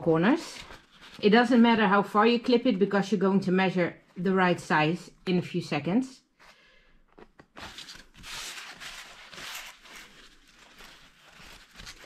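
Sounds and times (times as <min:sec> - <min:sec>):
waxed fabric rustling and crinkling: 0:07.8 - 0:12.0.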